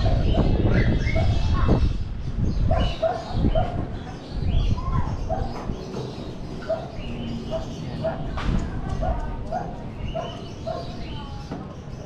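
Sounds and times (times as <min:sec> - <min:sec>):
dog barking: 0:02.7 - 0:03.8, 0:06.6 - 0:08.4, 0:09.0 - 0:11.0.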